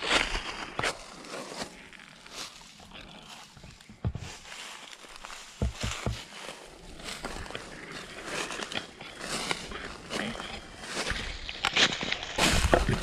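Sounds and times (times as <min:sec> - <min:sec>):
footsteps crunching dry leaves: 0:00.0 - 0:13.0
dull thumps: 0:03.9 - 0:04.4, 0:05.5 - 0:06.3.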